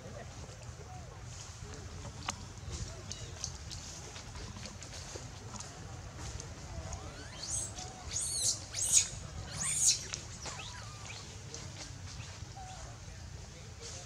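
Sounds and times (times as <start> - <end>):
infant monkey squealing: 7.1 - 11.2.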